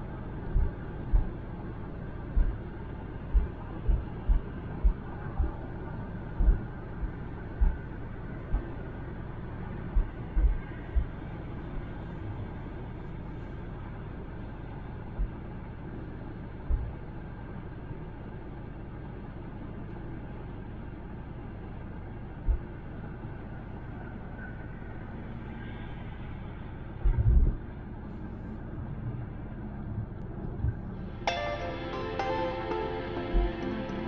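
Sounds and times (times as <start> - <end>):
road and tyre noise: 0.0 - 31.3
low thumps: 0.4 - 1.6, 2.2 - 8.8, 9.9 - 11.2.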